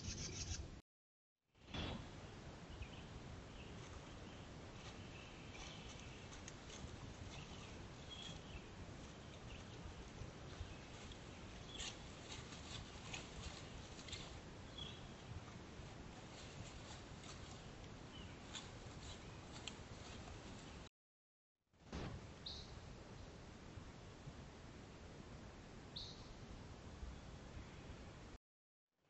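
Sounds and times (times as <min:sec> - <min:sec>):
bird chirps: 0:00.0 - 0:00.6.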